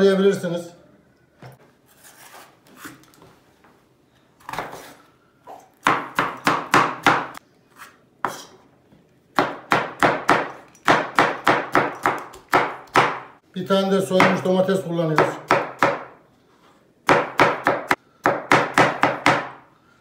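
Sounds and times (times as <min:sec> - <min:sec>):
knife chopping on wooden board: 0:05.8 - 0:07.4, 0:09.4 - 0:13.3, 0:15.2 - 0:16.2, 0:17.1 - 0:19.6.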